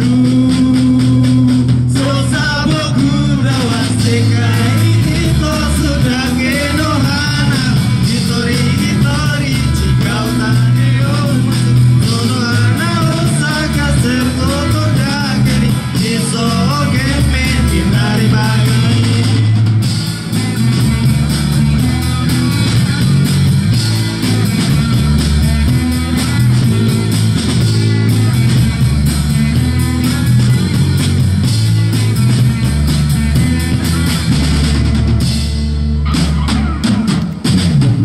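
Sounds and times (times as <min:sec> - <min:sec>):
person singing: 0:00.0 - 0:19.6
live pop-rock band: 0:00.0 - 0:38.0.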